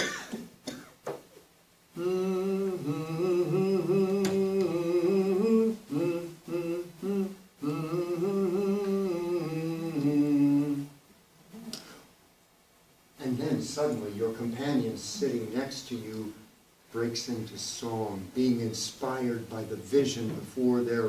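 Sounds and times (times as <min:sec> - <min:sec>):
man humming: 0:01.9 - 0:11.8, 0:14.8 - 0:15.7.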